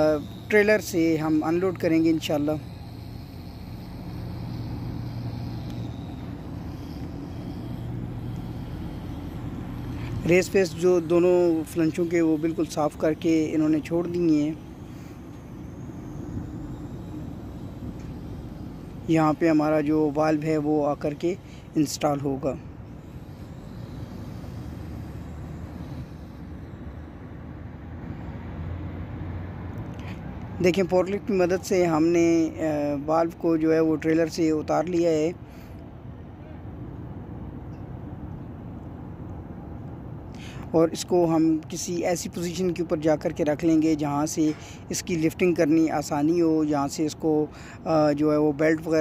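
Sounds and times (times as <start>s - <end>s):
diesel engine idling: 0.0s - 29.0s.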